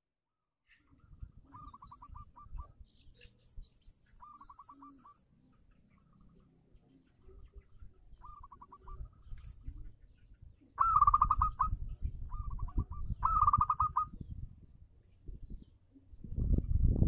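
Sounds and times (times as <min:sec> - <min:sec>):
dove cooing: 0:00.9 - 0:02.8, 0:04.2 - 0:05.2, 0:06.8 - 0:14.3.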